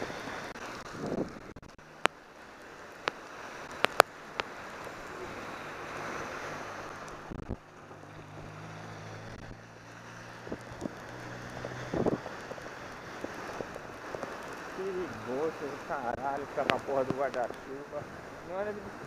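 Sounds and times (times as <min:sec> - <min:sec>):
wind noise: 0:00.0 - 0:01.7, 0:07.1 - 0:07.7, 0:10.4 - 0:15.4
motor vehicle hum: 0:00.0 - 0:19.0
rain: 0:00.0 - 0:19.0.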